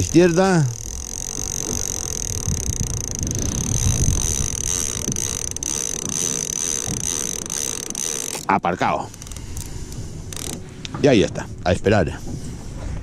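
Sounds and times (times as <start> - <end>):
wind buffeting microphone: 0.0 - 7.9.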